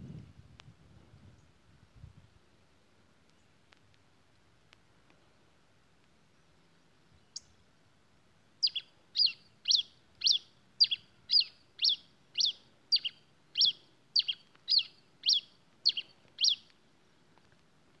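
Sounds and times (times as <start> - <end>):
finch singing: 8.6 - 16.7.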